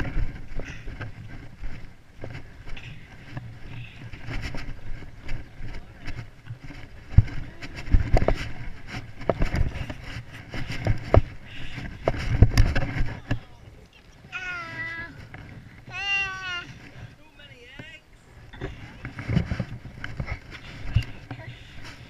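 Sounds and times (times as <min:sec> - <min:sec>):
camera handling rumble: 0:00.0 - 0:13.5, 0:18.5 - 0:22.0
handling knocks and bumps: 0:00.0 - 0:13.6.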